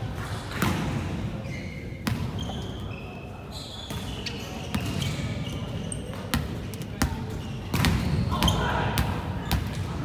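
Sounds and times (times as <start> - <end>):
sneakers squeaking on court: 0.2 - 10.0
volleyball hits: 6.3 - 9.8.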